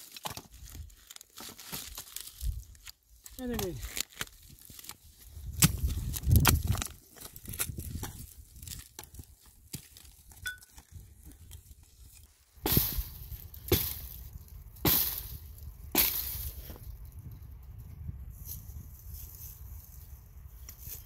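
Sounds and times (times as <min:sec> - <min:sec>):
sharp cracking strikes: 0:12.6 - 0:16.6.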